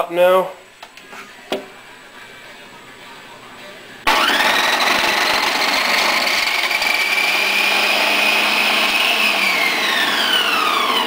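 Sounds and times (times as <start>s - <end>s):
food processor motor whining: 4.1s - 11.0s.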